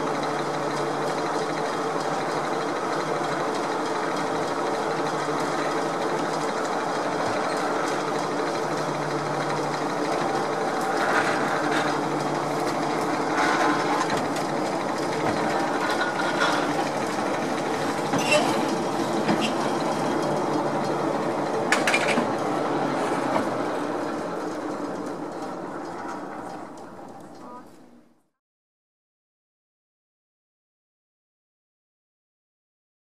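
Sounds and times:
funicular car whirring on rails: 0.0 - 28.2
short sharp squeaks: 18.1 - 18.7.

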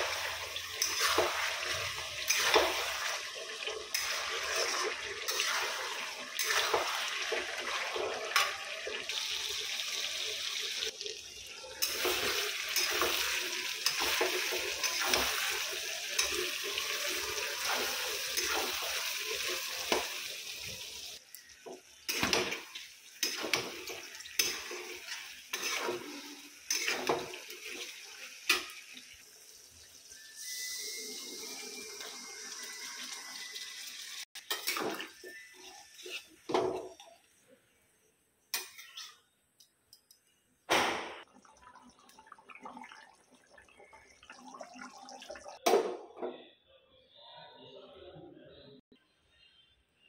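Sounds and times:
metal spatula scraping steel pan: 24.4 - 27.2, 34.5 - 37.0.

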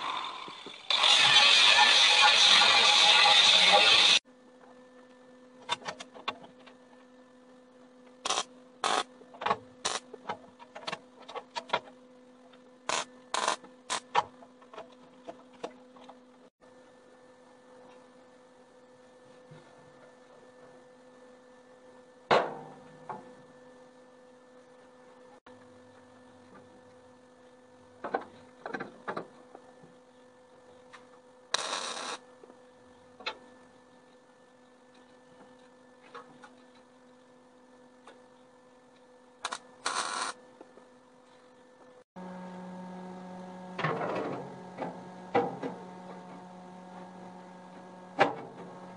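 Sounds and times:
welding crackle: 0.4 - 4.2, 8.2 - 9.0, 31.5 - 32.2, 39.4 - 40.4.

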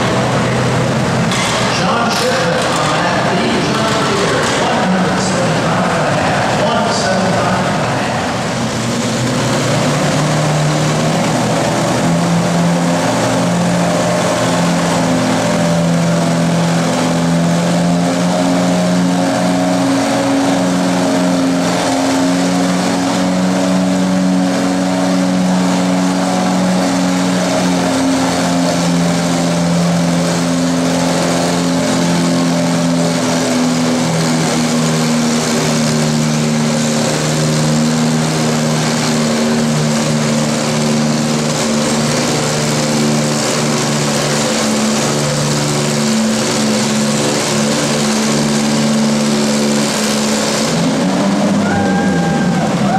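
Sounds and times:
tractor engine running: 0.0 - 52.9.

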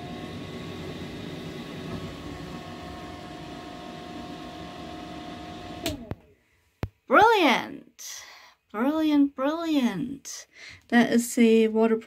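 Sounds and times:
extractor fan whining: 0.0 - 6.4.

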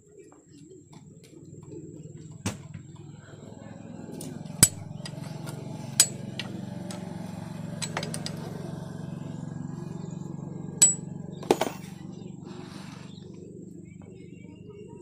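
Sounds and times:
metal spanner clinking on bolt: 4.6 - 7.1, 7.8 - 8.5, 10.8 - 11.8.

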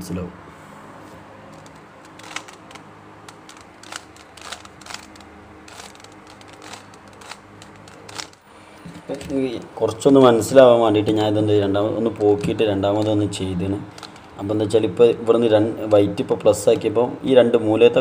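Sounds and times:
plastic puzzle cube clicking: 1.6 - 8.4, 13.9 - 14.3.

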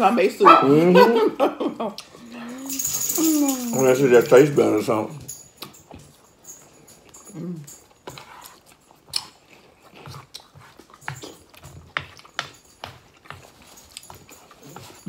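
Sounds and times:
eating and slurping: 7.0 - 15.0.

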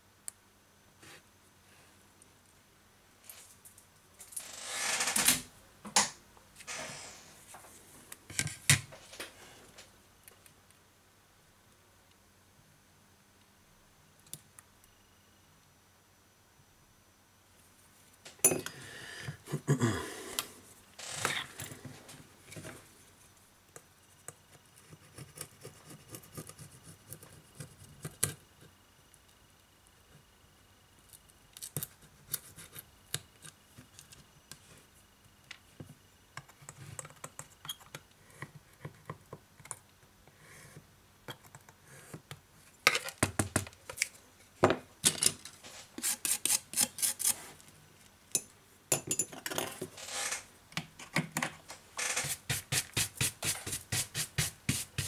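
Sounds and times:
brush scrubbing frame edge: 52.0 - 55.0
rubbing and handling of phone: 52.0 - 55.0.

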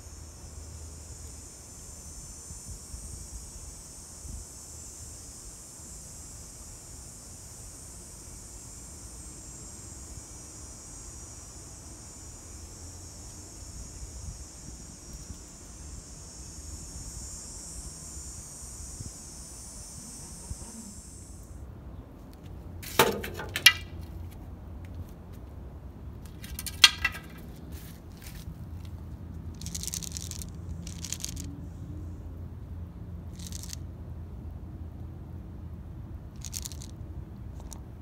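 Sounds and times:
high-pitched insect buzz: 0.0 - 21.6, 29.5 - 32.2, 33.3 - 33.8, 36.4 - 36.9.

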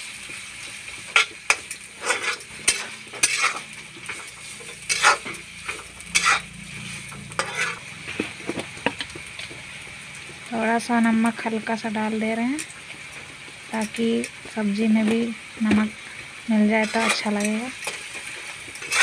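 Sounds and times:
vegetables sizzling in oil: 0.0 - 19.0
metal spatula scraping pan: 1.1 - 8.4, 16.8 - 19.0.

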